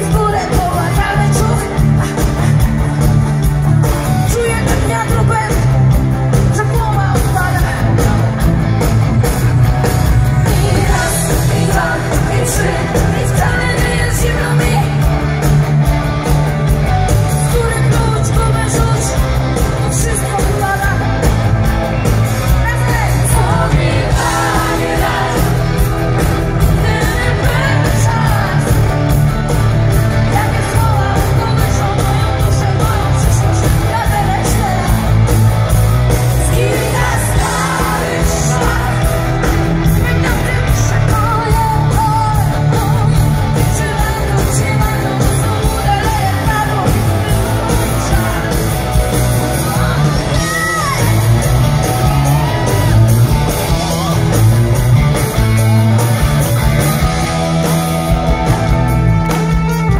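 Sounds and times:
woman singing: 0:00.0 - 0:03.1, 0:04.1 - 0:08.4, 0:10.4 - 0:15.3, 0:17.3 - 0:21.3, 0:26.6 - 0:29.0, 0:30.2 - 0:35.2, 0:36.4 - 0:39.2, 0:39.9 - 0:48.8, 0:49.5 - 0:51.3
pop-rock band playing: 0:00.0 - 0:59.9.

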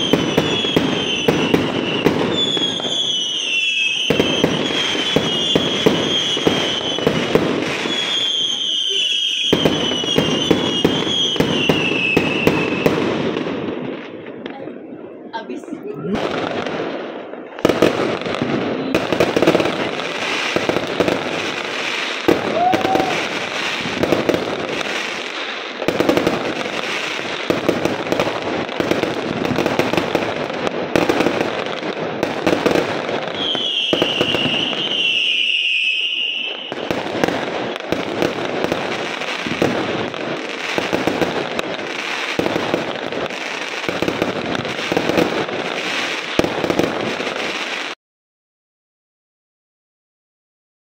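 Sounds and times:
fireworks banging and crackling: 0:00.0 - 0:48.0.

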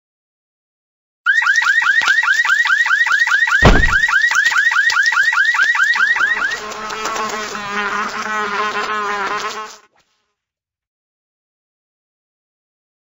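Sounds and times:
electronic alarm chirping: 0:01.3 - 0:06.6
heavy low thud: 0:03.6 - 0:04.1.

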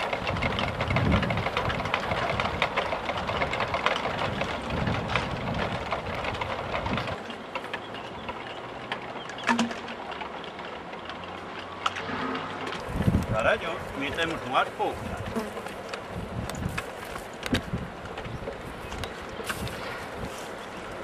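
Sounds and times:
wind gusting over microphone: 0:00.0 - 0:07.2, 0:12.0 - 0:15.4, 0:16.0 - 0:21.0.

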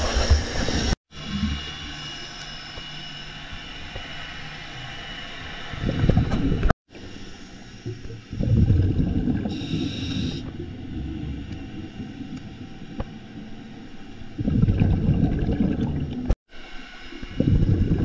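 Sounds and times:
steady hum with high tones: 0:00.0 - 0:18.0
diver exhaling bubbles underwater: 0:07.9 - 0:13.1, 0:14.3 - 0:16.4, 0:17.3 - 0:18.0.

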